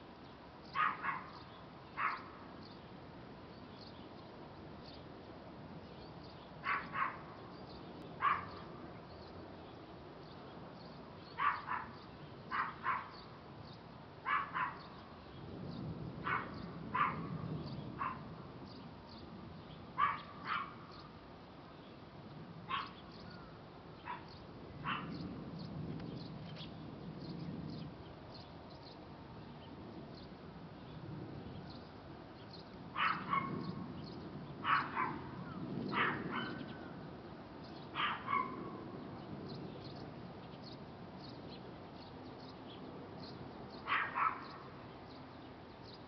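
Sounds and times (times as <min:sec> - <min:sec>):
dog barking: 0:00.8 - 0:01.4, 0:02.0 - 0:02.3, 0:06.6 - 0:07.3, 0:08.2 - 0:08.7, 0:11.4 - 0:13.2, 0:14.2 - 0:14.9, 0:16.2 - 0:18.3, 0:20.0 - 0:20.9, 0:22.7 - 0:23.0, 0:24.0 - 0:25.2, 0:33.0 - 0:33.7, 0:34.6 - 0:36.8, 0:38.0 - 0:38.8, 0:43.8 - 0:44.7.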